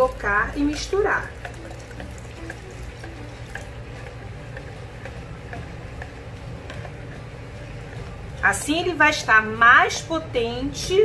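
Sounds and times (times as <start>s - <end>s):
metal spoon stirring gel: 0.0s - 8.5s
steady low hum: 0.0s - 11.0s
spoon clicking against plastic: 1.4s - 7.2s.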